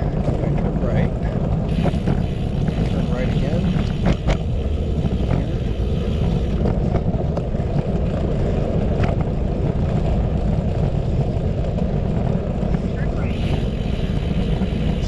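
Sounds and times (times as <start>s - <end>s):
wind rumbling on microphone: 0.0s - 15.0s.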